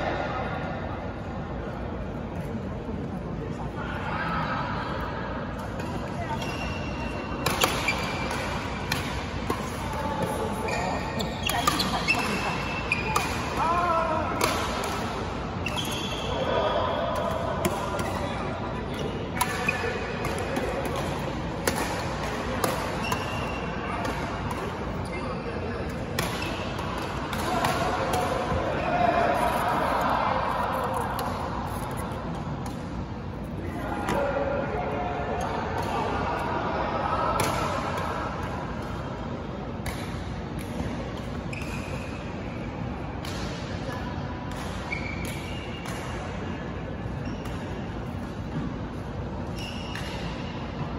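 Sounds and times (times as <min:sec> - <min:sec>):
large hall noise: 0:00.0 - 0:50.9
sneakers squeaking on floor: 0:06.2 - 0:08.6, 0:10.5 - 0:13.4, 0:15.6 - 0:16.4, 0:22.9 - 0:24.1, 0:41.4 - 0:42.7, 0:44.8 - 0:45.8, 0:47.2 - 0:48.6, 0:49.4 - 0:50.6
racket striking shuttlecock: 0:07.4 - 0:10.4, 0:19.4 - 0:24.8.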